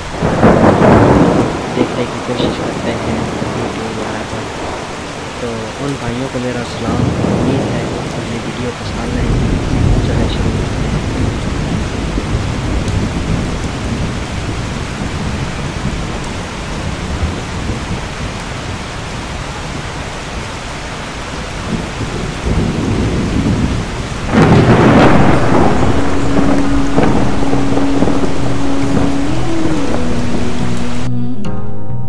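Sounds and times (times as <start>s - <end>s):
heavy low rumble: 0.0s - 18.4s, 21.7s - 32.0s
rain on a wet street: 0.0s - 31.1s
steady tone: 24.6s - 32.0s.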